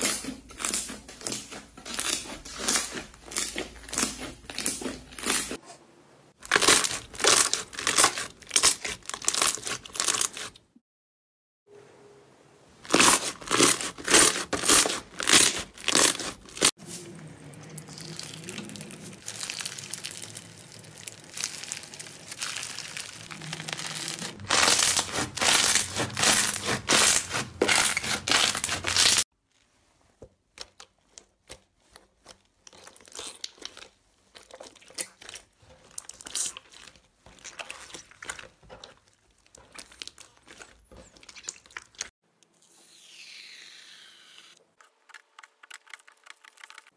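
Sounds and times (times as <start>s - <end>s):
slime crackling and popping: 6.4s - 10.5s, 12.9s - 16.7s, 17.8s - 29.2s, 32.6s - 42.1s.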